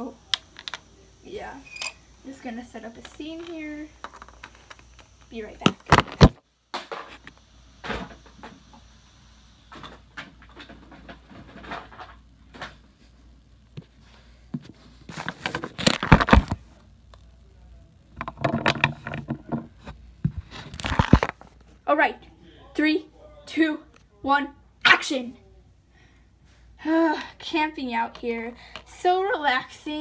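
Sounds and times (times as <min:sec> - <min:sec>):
small objects tapping and knocking: 0:00.3 - 0:01.0, 0:03.0 - 0:07.4, 0:18.1 - 0:21.4.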